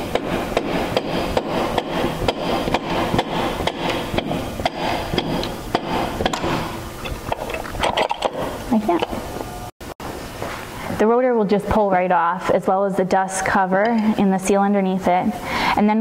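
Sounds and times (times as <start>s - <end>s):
rubber hammer knocking on metal: 0.1s - 6.7s.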